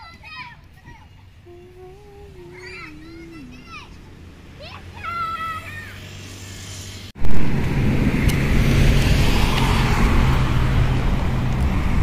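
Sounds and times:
road traffic rumble: 0:00.0 - 0:12.0
passing car hiss: 0:02.3 - 0:11.9.

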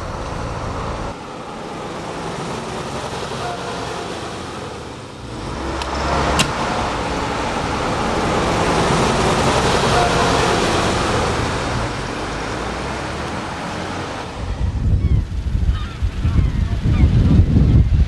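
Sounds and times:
vehicle passing: 0:00.0 - 0:16.9
wind buffeting microphone: 0:13.8 - 0:18.0.

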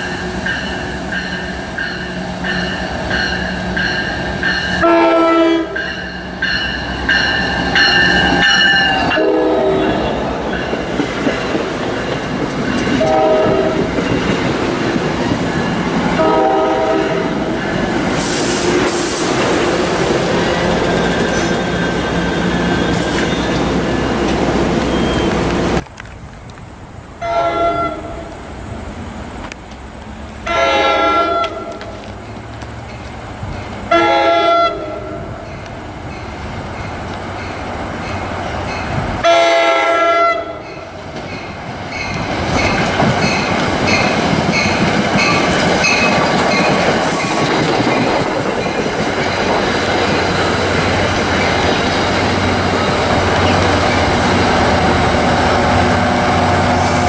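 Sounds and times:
crossing bell dinging: 0:00.0 - 0:14.4, 0:40.4 - 0:47.0
train rumbling past: 0:00.0 - 0:57.0
train horn blasts: 0:04.6 - 0:06.0, 0:07.4 - 0:10.2, 0:13.0 - 0:14.0, 0:16.1 - 0:17.5, 0:27.2 - 0:28.3, 0:30.5 - 0:32.0, 0:33.9 - 0:35.4, 0:39.2 - 0:40.6.

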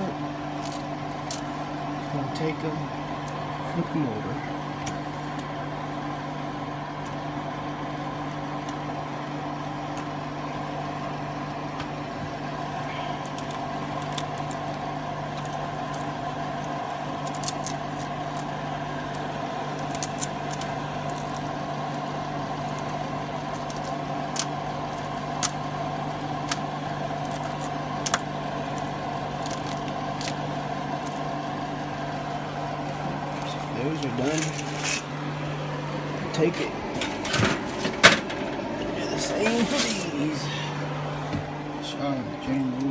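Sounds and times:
exhaust fan humming: 0:00.0 - 0:42.9
aluminium foil crinkling: 0:12.9 - 0:25.6, 0:26.4 - 0:31.4, 0:32.8 - 0:35.1.

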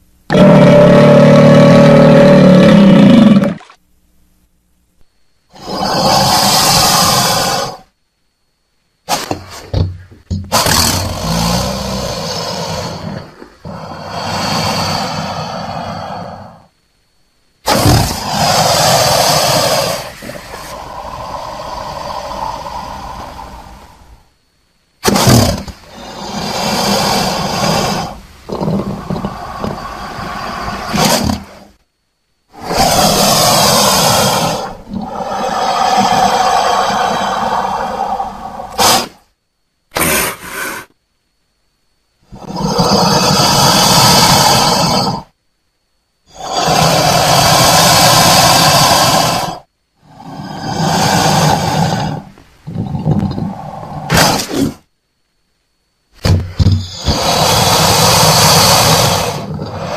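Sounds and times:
crocodile calling: 0:00.3 - 0:03.8, 0:05.5 - 0:07.9, 0:10.5 - 0:16.7, 0:17.7 - 0:24.2, 0:25.0 - 0:31.8, 0:32.5 - 0:39.2, 0:42.3 - 0:45.4, 0:46.3 - 0:54.9, 0:56.8 - 0:59.9.

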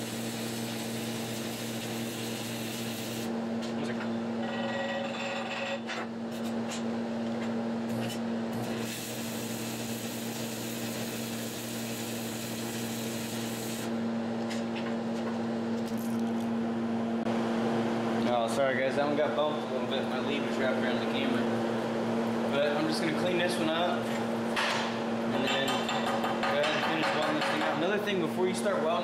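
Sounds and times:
welding arc crackling and hissing: 0:00.0 - 0:03.3, 0:08.6 - 0:13.9.

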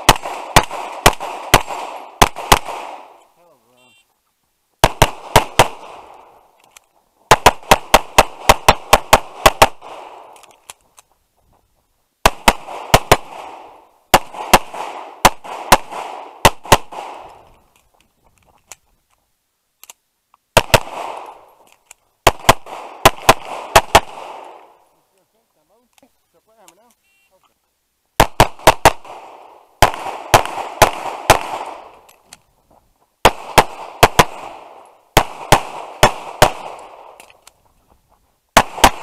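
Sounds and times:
pistol firing rapid shots: 0:00.0 - 0:03.2, 0:04.8 - 0:06.2, 0:07.3 - 0:10.4, 0:12.2 - 0:17.4, 0:20.6 - 0:21.4, 0:22.2 - 0:24.7, 0:28.2 - 0:31.9, 0:33.2 - 0:37.2, 0:38.6 - 0:39.0.

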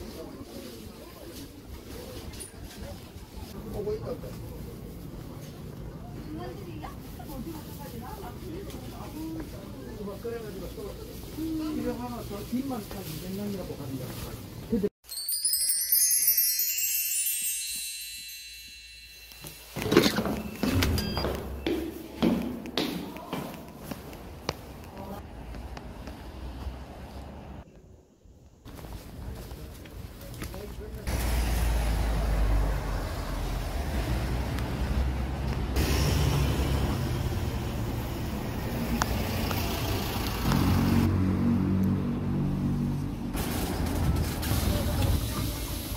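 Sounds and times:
wind chimes tinkling: 0:15.0 - 0:21.3
passing road traffic rumble: 0:24.2 - 0:27.6, 0:31.1 - 0:45.9.

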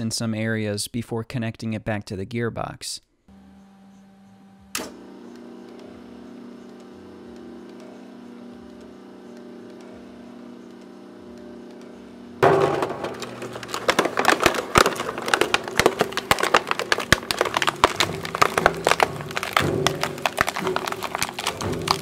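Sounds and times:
shredder motor humming: 0:03.3 - 0:22.0
plastic cracking and snapping: 0:12.5 - 0:22.0.

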